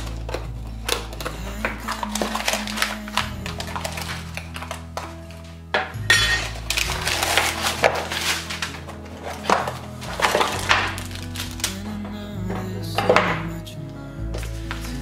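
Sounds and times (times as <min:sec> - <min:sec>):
soft background music: 0:00.0 - 0:15.0
cardboard and paper sliding: 0:06.7 - 0:11.8.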